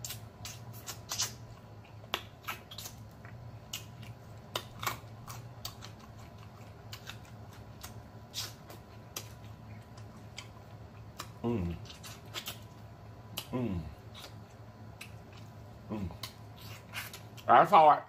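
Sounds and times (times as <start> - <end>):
wet lip smacks: 0.0 - 1.4, 11.1 - 13.5
chewing clicks: 0.0 - 13.5.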